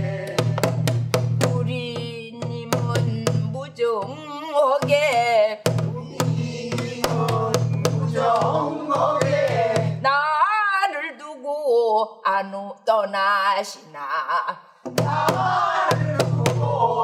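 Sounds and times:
woman singing with vibrato: 1.4s - 8.8s, 9.9s - 17.0s.

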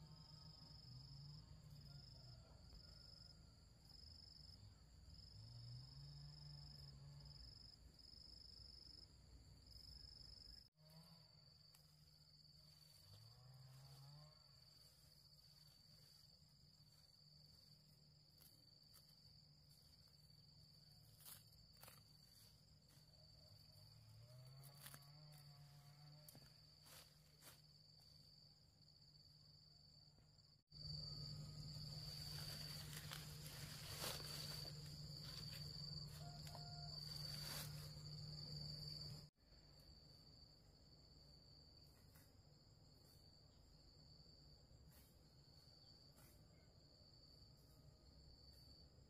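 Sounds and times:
insects trilling: 30.7s - 39.3s.

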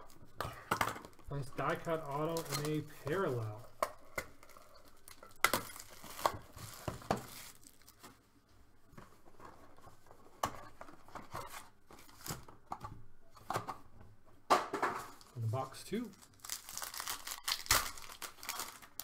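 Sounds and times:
wrappers crinkling and tearing: 4.3s - 8.2s, 15.1s - 19.0s.

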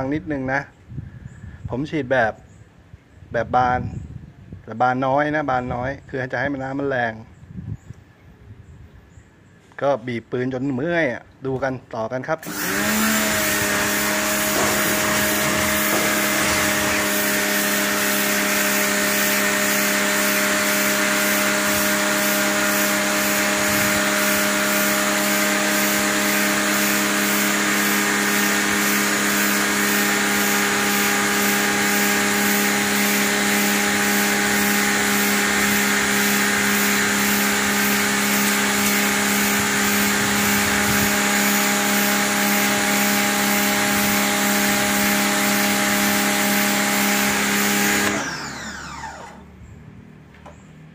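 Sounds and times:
water jet spraying concrete: 12.4s - 48.8s
pressure washer motor hum: 12.4s - 49.7s.

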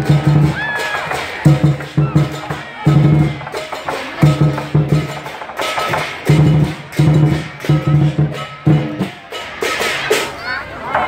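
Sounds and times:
big drum pounding: 0.0s - 10.4s
cymbals crashing: 0.0s - 10.8s.

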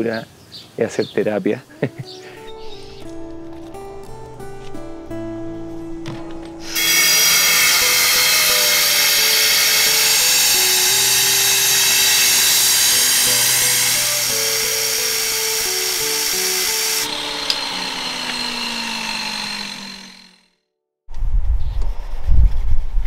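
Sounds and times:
background music: 1.7s - 19.7s
angle grinder cutting stone: 6.0s - 20.6s.

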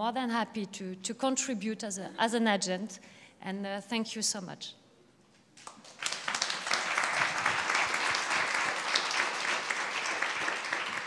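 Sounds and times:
audience applauding: 5.6s - 11.0s.

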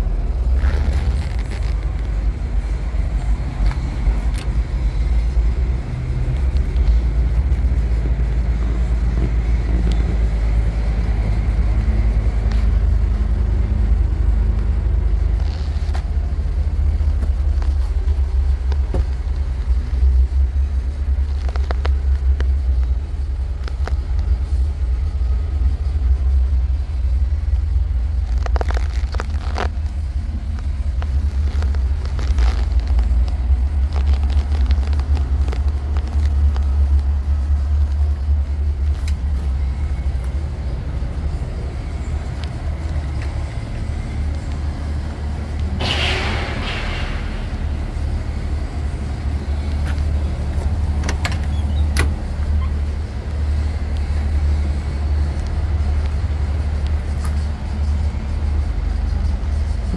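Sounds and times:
diesel truck idling: 0.0s - 59.9s.

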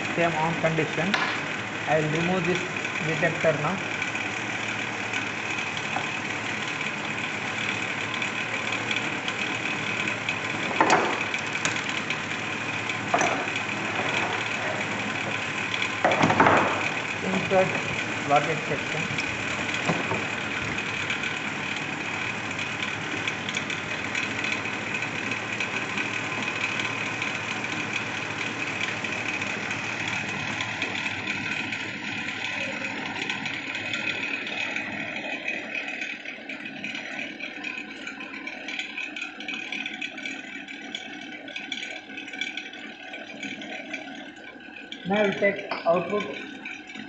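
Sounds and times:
machine hum with high whine: 0.0s - 47.0s.

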